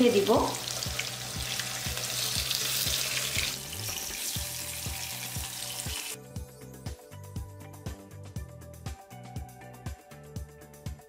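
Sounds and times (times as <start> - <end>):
fish sizzling in hot oil: 0.0 - 6.2
background music with steady beat: 0.0 - 11.0.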